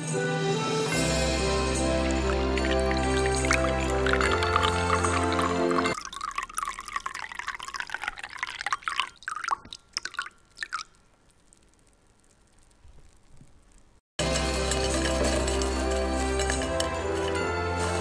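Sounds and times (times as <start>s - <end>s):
background music: 0.0s - 6.0s, 14.2s - 18.0s
milk pouring into a bowl: 2.0s - 11.0s.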